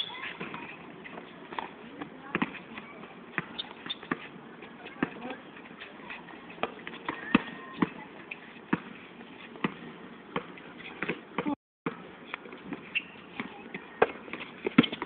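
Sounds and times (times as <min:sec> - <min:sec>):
faint voices: 0:00.0 - 0:11.6
basketball bouncing on hard court: 0:02.3 - 0:02.6.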